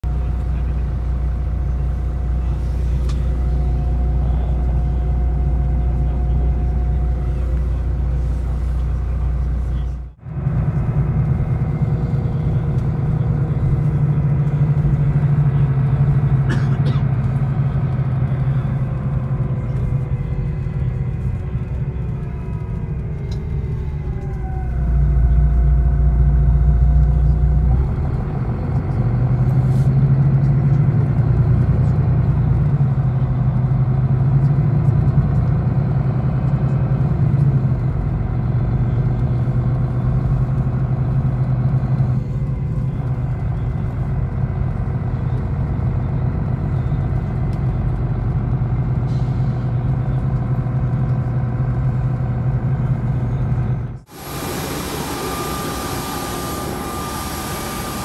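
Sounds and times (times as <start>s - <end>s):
bus engine rumble from inside: 0.0s - 58.0s
whine dropping in pitch: 54.1s - 58.0s.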